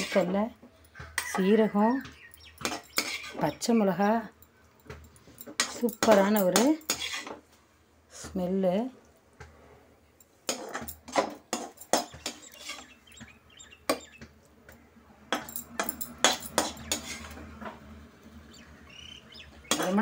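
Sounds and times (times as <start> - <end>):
metal spatula scraping steel cookware: 0.0 - 0.4, 2.6 - 3.5, 5.4 - 7.4, 10.5 - 13.1, 15.9 - 17.5.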